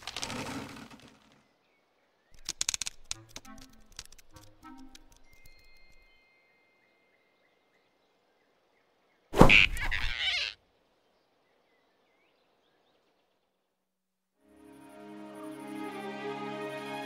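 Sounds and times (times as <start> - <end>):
faint forest ambience: 0.0 - 17.0
small bird chirps: 1.7 - 13.3
cartoon squirrel squealing: 9.4 - 10.6.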